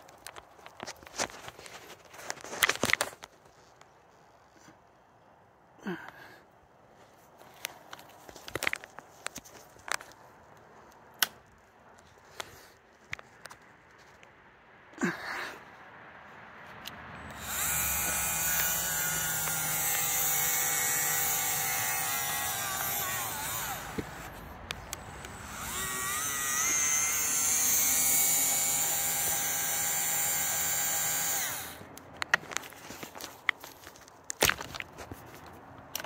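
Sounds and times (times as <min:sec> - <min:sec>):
power tool motor whining: 0:17.3 - 0:31.9.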